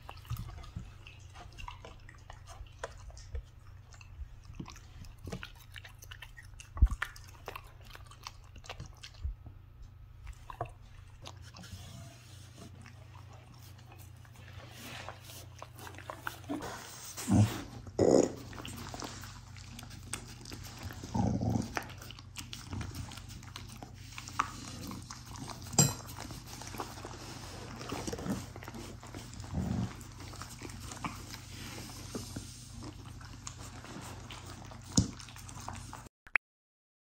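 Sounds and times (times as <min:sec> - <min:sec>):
dog licking a plate: 0:00.0 - 0:09.4, 0:18.4 - 0:36.1.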